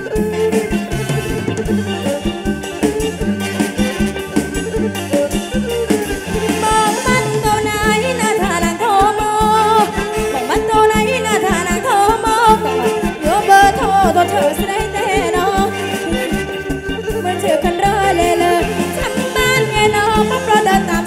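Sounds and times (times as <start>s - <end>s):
bass: 0.0s - 21.0s
bowed fiddle: 0.0s - 21.0s
drum kit beat: 0.0s - 21.0s
woman singing: 6.6s - 21.0s.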